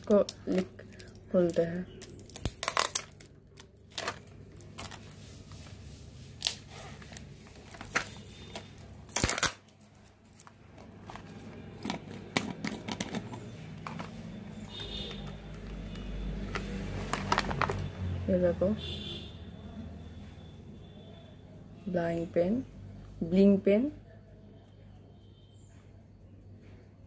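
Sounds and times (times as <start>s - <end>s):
plastic jar cap clicking and knocking: 11.8s - 14.1s.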